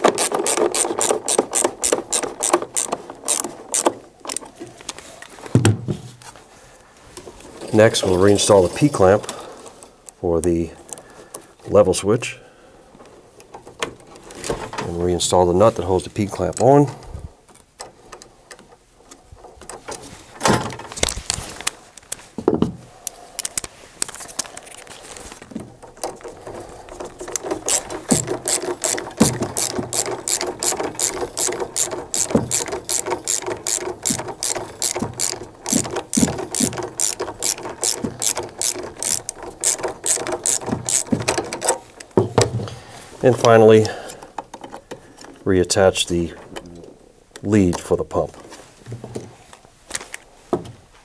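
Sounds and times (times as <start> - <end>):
ratchet wrench clicking: 0.0 - 3.9, 27.3 - 41.2.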